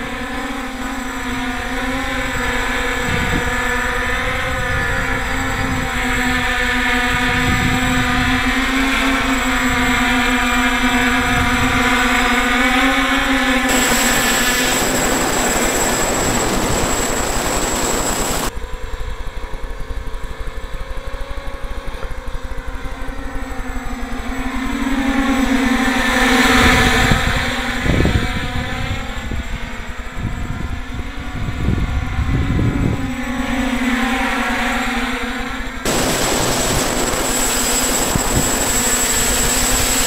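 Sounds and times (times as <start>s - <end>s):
wind on microphone: 7.1s - 8.4s, 30.2s - 33.1s, 35.9s - 40.0s
drones hovering: 13.7s - 18.5s, 35.8s - 40.0s.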